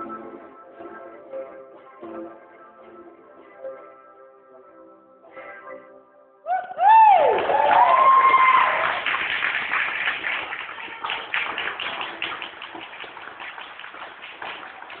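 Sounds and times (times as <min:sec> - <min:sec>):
audience clapping: 0:06.9 - 0:15.0.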